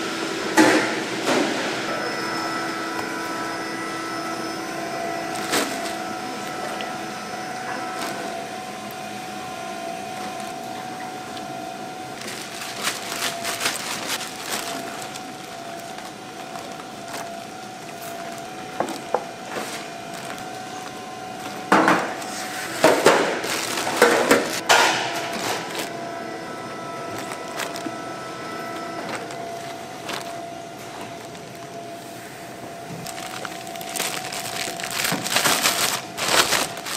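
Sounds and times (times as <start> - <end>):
factory machinery hum: 0.0 - 36.9
plastic crinkling and rustling: 5.3 - 7.0, 7.8 - 8.4, 12.2 - 26.1, 26.8 - 31.9, 32.8 - 36.9.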